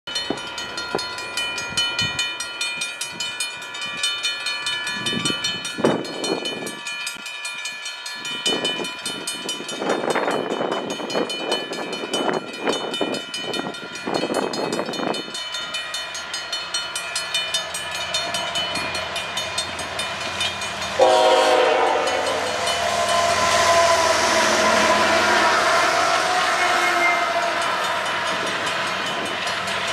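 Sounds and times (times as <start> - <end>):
train engines and wheels passing: 0.1 - 29.9
train rumbling: 8.2 - 29.9
level crossing bells ringing: 10.8 - 29.9
locomotive horn toot: 21.0 - 28.0.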